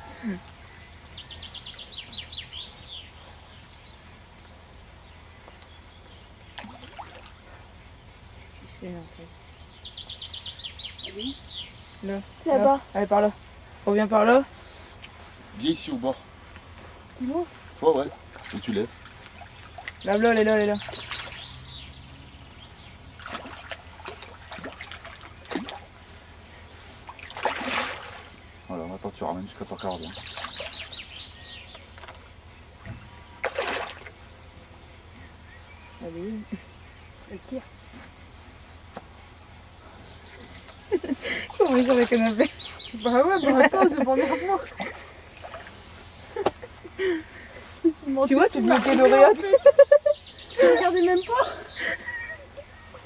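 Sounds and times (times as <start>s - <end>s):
songbird singing: 0.0s - 53.0s
fish splashing in water: 6.6s - 7.6s, 18.1s - 21.6s, 23.1s - 26.0s, 27.0s - 28.4s, 30.1s - 31.0s, 32.9s - 34.2s.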